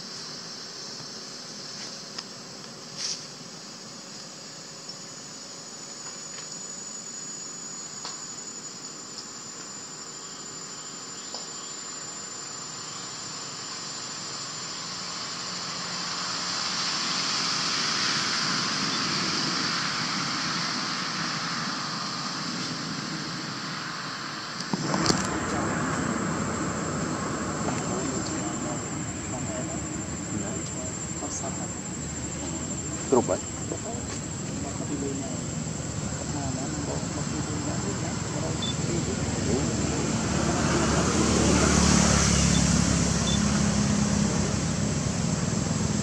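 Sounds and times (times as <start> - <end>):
insects buzzing: 0.0 - 46.0
thin high steady tone: 3.4 - 19.2.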